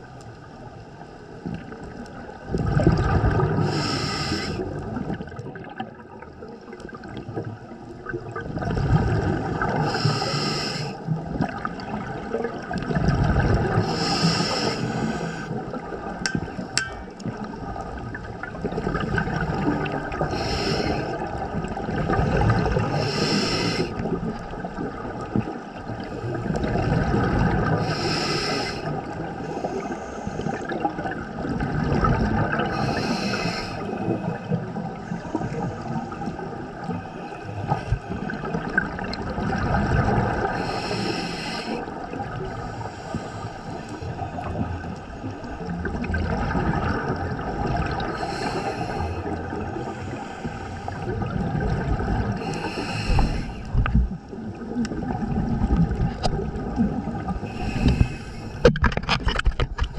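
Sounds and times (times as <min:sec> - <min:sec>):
rush of bubbles: 0:01.6 - 0:42.9, 0:43.7 - 0:59.9
regulator breathing hiss: 0:03.6 - 0:04.7, 0:09.8 - 0:11.0, 0:13.8 - 0:15.6, 0:20.3 - 0:21.2, 0:22.9 - 0:24.0, 0:27.8 - 0:30.6, 0:32.7 - 0:34.4, 0:40.6 - 0:41.9, 0:42.6 - 0:44.1, 0:48.2 - 0:51.0, 0:52.4 - 0:53.8, 0:57.4 - 0:58.6.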